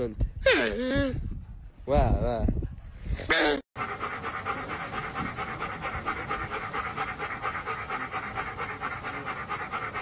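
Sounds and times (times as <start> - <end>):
dog panting: 3.8 - 10.0.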